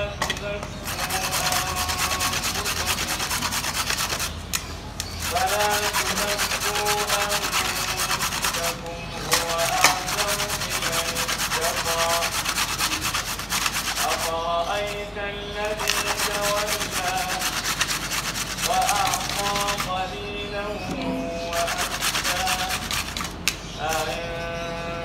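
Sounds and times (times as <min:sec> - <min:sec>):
carrot grated on metal grater: 0:00.7 - 0:04.4, 0:05.0 - 0:20.1, 0:21.2 - 0:24.2.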